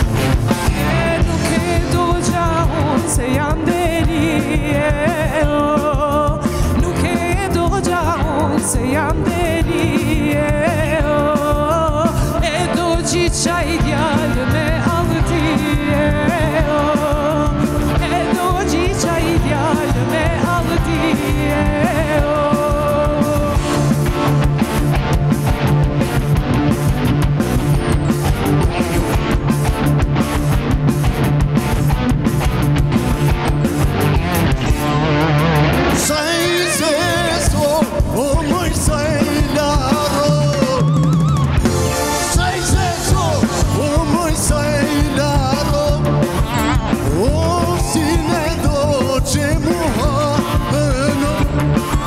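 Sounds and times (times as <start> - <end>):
drum kit: 0.0 - 52.0
live rock band: 0.0 - 52.0
woman singing into microphone: 0.8 - 23.7.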